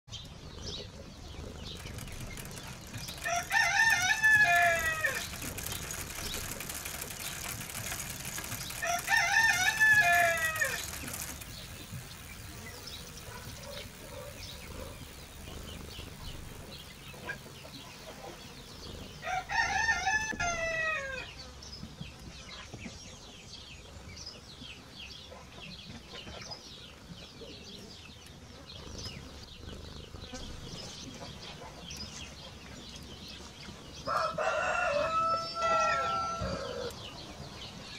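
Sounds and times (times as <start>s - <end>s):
faint bird chirping: 0.1s - 20.2s, 21.2s - 37.9s
rooster crowing: 3.2s - 5.3s, 8.8s - 11.0s, 19.2s - 21.3s, 34.1s - 37.0s.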